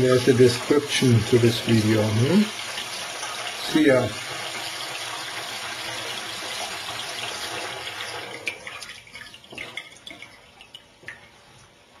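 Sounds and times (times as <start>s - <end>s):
tap water running into metal sink: 0.0s - 11.4s
water drips: 8.4s - 11.8s.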